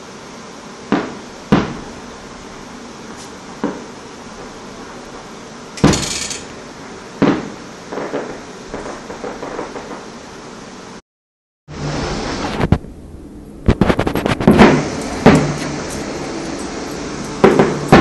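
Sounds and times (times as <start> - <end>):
fireworks bangs: 0.0 - 11.0, 11.8 - 18.0
fireworks crackling hiss: 0.0 - 11.0, 11.7 - 18.0
small fireworks pops: 0.9 - 2.0, 3.1 - 6.5, 7.2 - 10.2, 12.3 - 12.9, 13.6 - 18.0.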